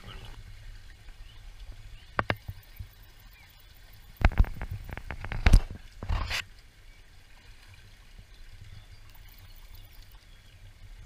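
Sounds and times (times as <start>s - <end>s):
shallow stream trickling: 0.0s - 11.0s
water splashes and knocks: 0.9s - 3.0s, 4.1s - 6.6s.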